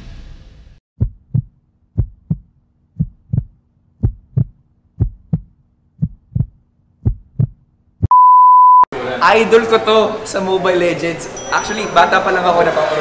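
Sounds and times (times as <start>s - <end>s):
heartbeat thumps: 1.0s - 8.2s.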